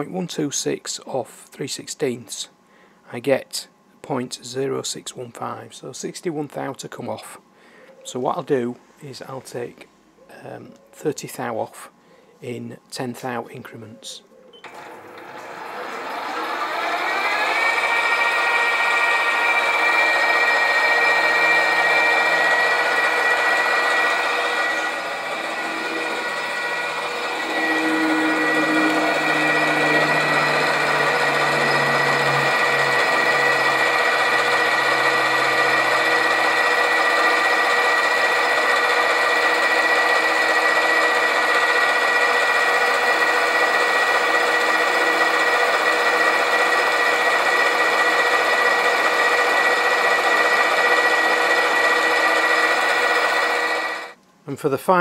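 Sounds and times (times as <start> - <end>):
metal lathe whining: 14.7 - 54.2.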